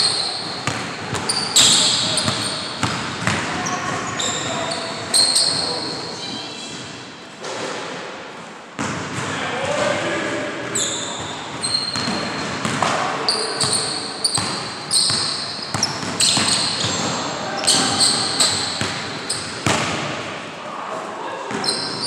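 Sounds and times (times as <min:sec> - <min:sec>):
sneakers squeaking: 0:00.0 - 0:07.3, 0:10.6 - 0:19.9, 0:21.5 - 0:22.0.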